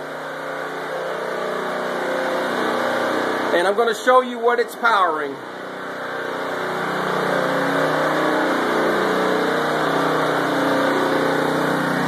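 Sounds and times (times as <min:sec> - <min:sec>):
generator engine running: 0:00.0 - 0:12.0.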